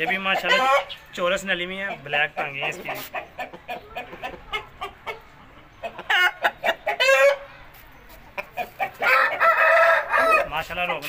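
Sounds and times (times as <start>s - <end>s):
roosters crowing: 8.8s - 11.0s.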